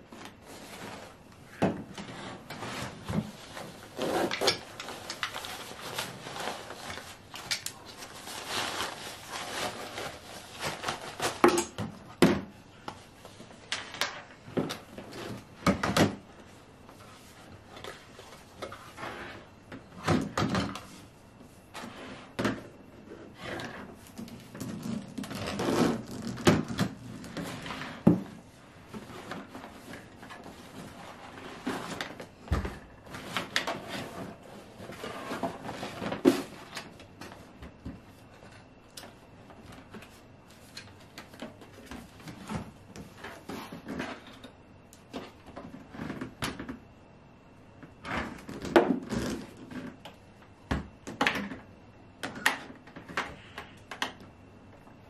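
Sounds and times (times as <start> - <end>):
fabric and hose rustling: 0.1 - 11.4.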